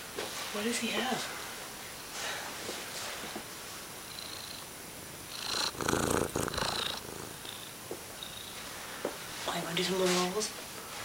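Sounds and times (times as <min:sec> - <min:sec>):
cat purring loudly: 0:04.1 - 0:08.6.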